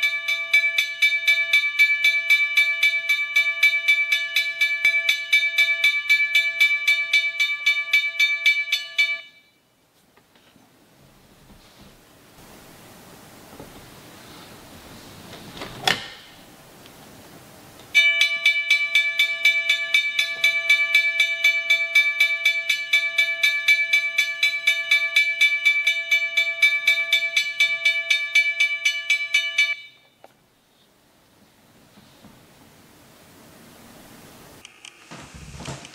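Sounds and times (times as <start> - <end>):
railroad crossing bell ringing: 0.0 - 9.6, 18.0 - 30.2.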